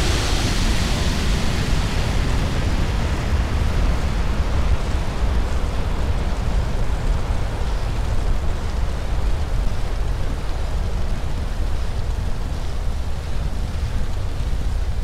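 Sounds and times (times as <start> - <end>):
spacecraft engine rumble with hiss: 0.0 - 8.2.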